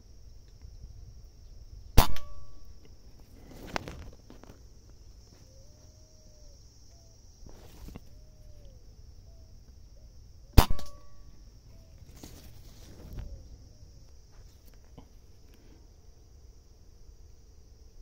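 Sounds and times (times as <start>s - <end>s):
air rifle shot: 2.0s - 2.5s, 10.6s - 11.2s.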